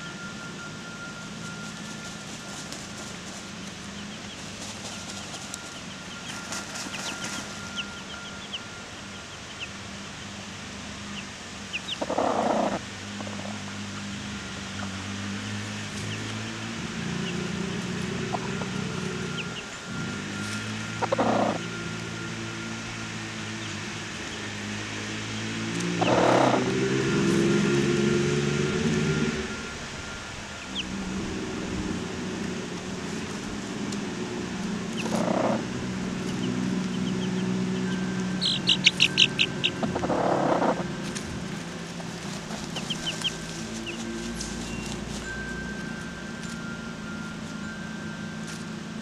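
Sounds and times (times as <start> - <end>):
high chirps: 0.0 - 10.4, 11.1 - 49.0
feathers rustling: 1.2 - 8.3, 40.7 - 48.9
hens clucking: 11.1 - 14.1, 15.9 - 22.1, 25.8 - 26.7, 32.3 - 45.5
faint high peeps: 11.8 - 24.4, 34.9 - 41.0.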